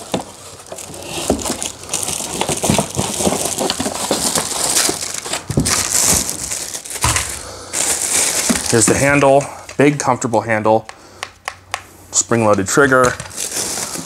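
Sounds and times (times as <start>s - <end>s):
cardboard rustling and crinkling: 0.0s - 10.2s, 12.4s - 14.0s.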